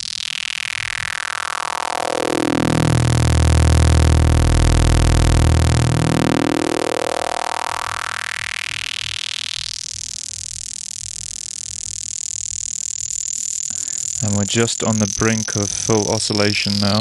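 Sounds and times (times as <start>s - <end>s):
resonant filter whistle: 0.0s - 9.7s
filtered square wave synth: 0.0s - 17.0s.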